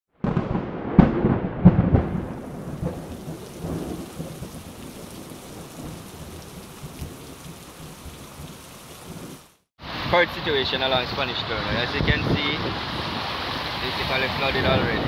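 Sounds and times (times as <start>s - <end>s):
sharp thunder cracks: 0.2s - 6.4s
thunder rumbling: 0.2s - 9.4s
heavy rain hiss: 2.6s - 15.0s.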